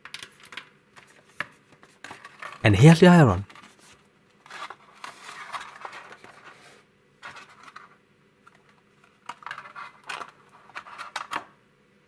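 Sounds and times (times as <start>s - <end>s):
plastic tray rustling and scraping: 3.5s - 11.4s.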